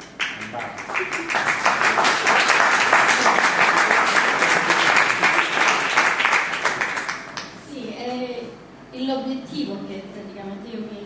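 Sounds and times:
audience applauding: 0.2s - 7.5s.

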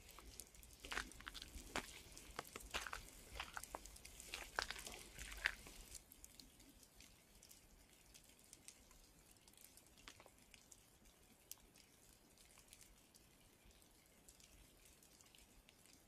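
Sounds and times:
water dripping: 0.0s - 16.0s
footsteps on gravel: 0.8s - 6.0s.

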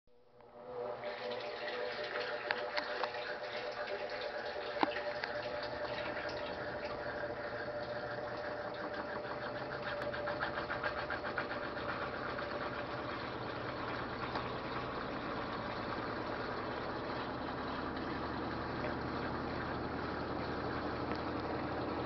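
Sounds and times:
washing machine motor hum: 0.2s - 22.0s
fast rhythmic rattle: 8.4s - 18.0s.

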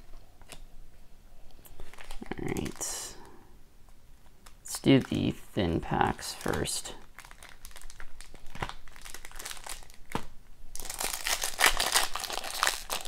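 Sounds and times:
foil wrapper crinkling: 1.7s - 3.2s, 4.4s - 5.4s, 6.0s - 13.0s.

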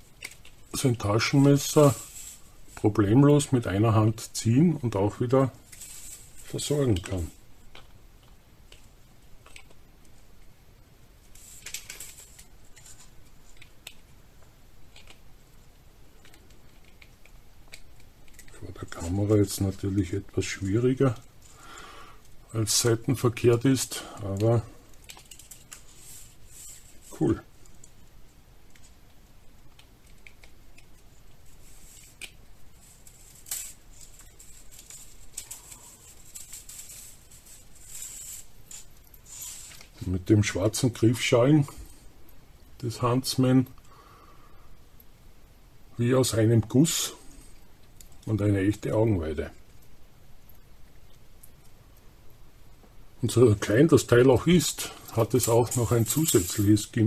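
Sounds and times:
light clicks and rustles: 0.0s - 10.6s, 11.2s - 43.9s, 46.7s - 57.0s
bead chain rattle: 0.1s - 3.5s, 5.5s - 7.4s, 22.7s - 28.0s, 31.4s - 40.0s, 54.4s - 57.0s
plastic packaging crinkling: 16.1s - 28.0s, 29.7s - 40.1s
metal ball chain clicks: 31.8s - 40.0s, 54.6s - 57.0s.

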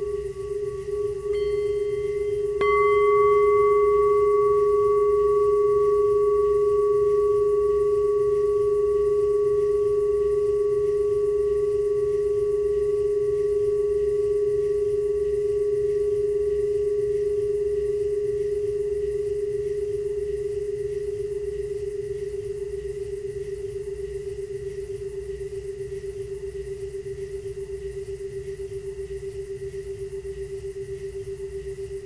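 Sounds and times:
low drone: 0.0s - 22.6s
pure ringing tone: 0.0s - 32.0s.

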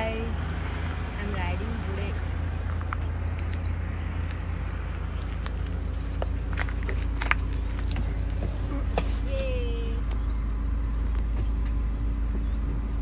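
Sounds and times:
motorcycle engine thumping: 5.3s - 13.0s.

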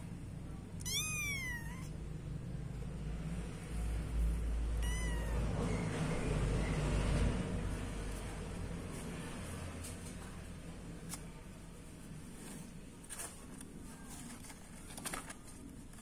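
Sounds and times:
kitten meowing: 0.8s - 2.0s, 4.7s - 5.8s
soft rustling: 8.0s - 16.0s.

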